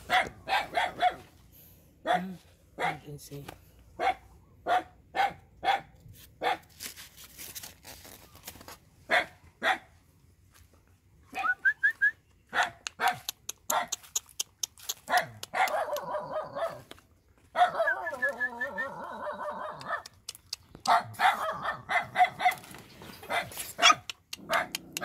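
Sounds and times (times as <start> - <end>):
puppies yipping: 20.8 - 25.0.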